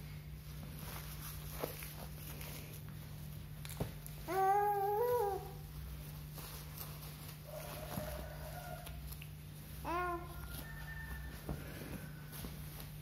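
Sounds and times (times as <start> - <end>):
steady low hum: 0.0 - 13.0
baby cooing: 4.3 - 5.6, 9.8 - 10.4.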